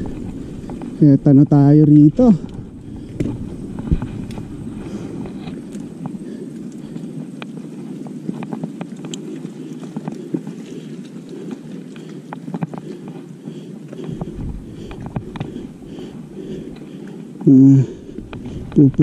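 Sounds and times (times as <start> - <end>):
wind on microphone: 0.0 - 11.3, 14.1 - 16.9
bike clicks and rattles: 0.0 - 19.0
bike tyres rumbling on dirt: 0.0 - 19.0.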